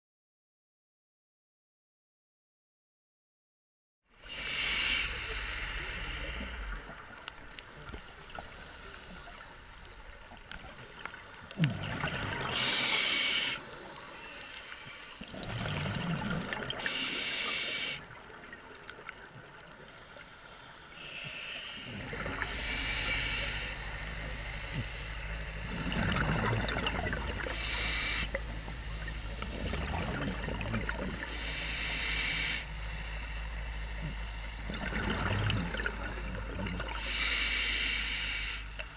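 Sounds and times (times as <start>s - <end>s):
underwater bubbles bursting: 10.3s - 13.2s, 15.2s - 17.2s, 25.6s - 31.3s, 34.1s - 37.0s
low steady rumble: 18.0s - 38.9s.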